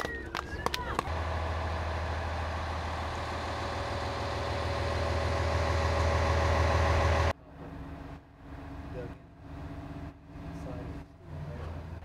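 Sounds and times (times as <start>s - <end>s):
heavy engine idling: 0.8s - 7.3s.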